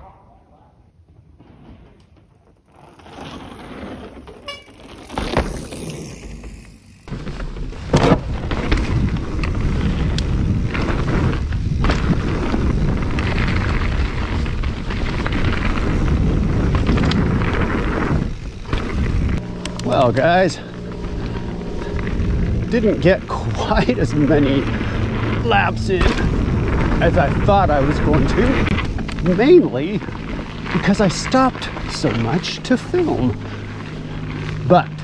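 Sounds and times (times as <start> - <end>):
bike tyres rattling over dirt: 1.2 - 35.0
wind buffeting microphone: 8.4 - 19.6, 20.8 - 30.7.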